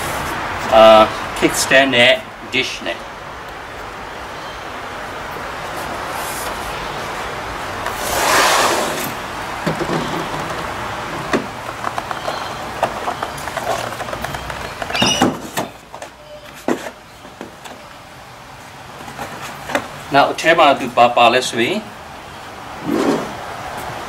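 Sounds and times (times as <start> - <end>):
steady background noise: 0.0 - 24.0
knocks taps and scrapes: 9.6 - 17.8
cardboard packaging rustling: 9.7 - 17.8.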